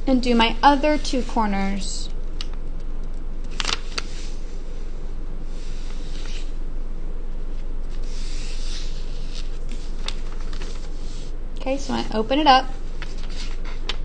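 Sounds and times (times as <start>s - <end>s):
steady low background hum: 0.0s - 14.0s
paper rubbing and rustling: 3.5s - 4.4s, 5.5s - 6.6s, 7.8s - 11.3s, 12.8s - 14.0s.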